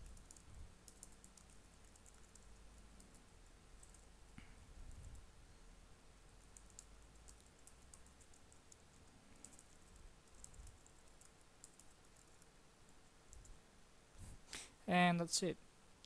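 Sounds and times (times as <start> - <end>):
typing on keyboard: 0.0 - 4.1, 6.4 - 12.6.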